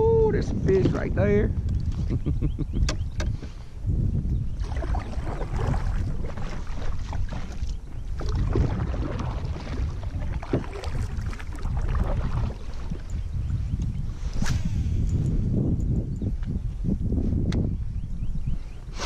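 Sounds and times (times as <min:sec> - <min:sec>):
wind rumble on microphone: 0:00.0 - 0:19.0
paddle splashing in water: 0:04.6 - 0:13.2.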